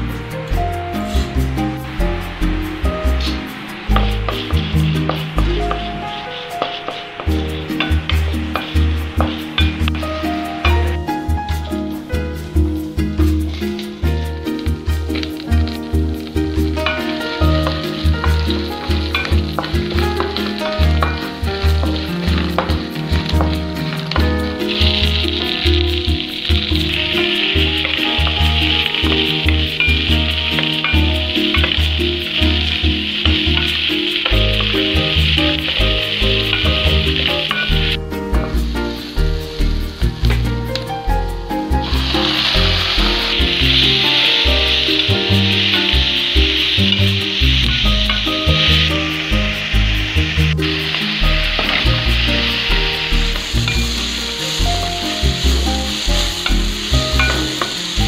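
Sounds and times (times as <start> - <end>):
background music with bass: 0.0 - 58.0
onions sizzling in oil: 0.0 - 58.0.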